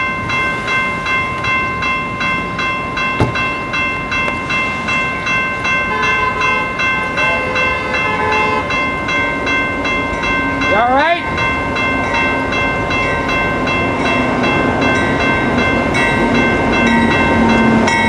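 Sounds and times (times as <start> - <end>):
railroad crossing bell ringing: 0.0 - 18.0
sharp knock: 3.2 - 3.4
train horn: 5.8 - 8.8.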